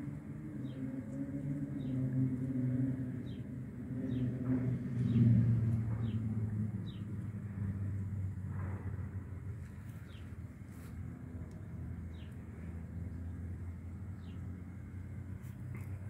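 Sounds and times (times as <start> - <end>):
engine droning: 0.0 - 16.0
bird chirping: 5.9 - 7.1.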